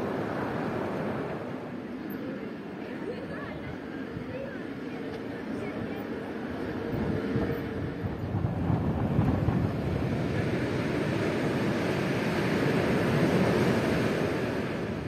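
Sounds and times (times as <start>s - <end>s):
wind buffeting microphone: 5.2s - 15.0s.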